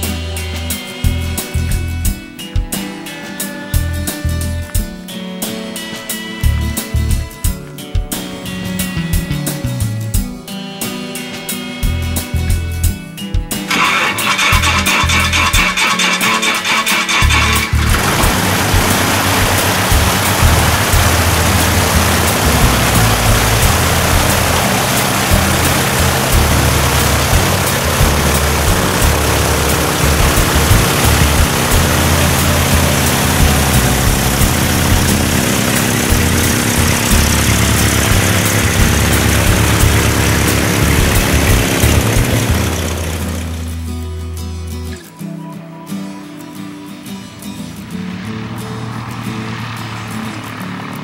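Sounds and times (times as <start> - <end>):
propeller plane engine: 13.7 - 44.0, 47.3 - 51.0
loud rushing noise: 17.2 - 43.8, 47.2 - 51.0.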